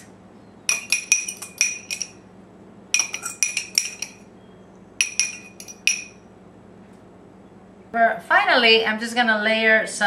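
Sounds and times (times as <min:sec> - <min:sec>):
fork clinking on ceramic ramekin: 0:00.7 - 0:02.2, 0:03.0 - 0:04.2, 0:05.0 - 0:06.2.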